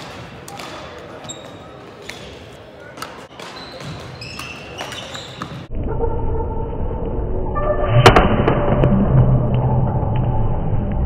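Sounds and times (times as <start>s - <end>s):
muffled low drone: 5.7s - 11.0s.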